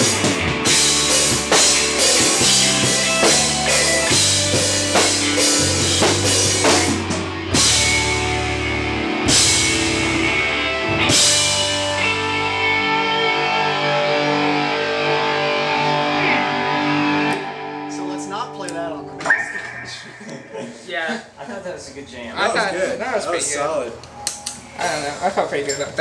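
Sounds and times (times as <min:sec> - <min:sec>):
rock band playing live: 0:00.0 - 0:20.9
electric guitars ringing: 0:00.0 - 0:21.4
cymbal crashes: 0:19.2 - 0:20.9.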